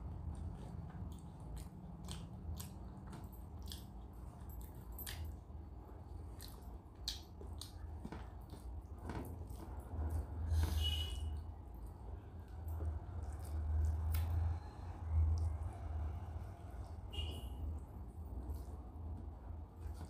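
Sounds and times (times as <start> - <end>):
chewing mouth sounds: 0.0 - 5.5, 6.1 - 10.2, 11.6 - 14.7.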